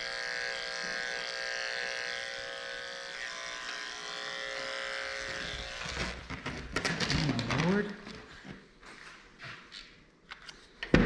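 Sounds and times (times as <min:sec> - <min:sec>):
electric clippers buzzing: 0:00.0 - 0:06.4.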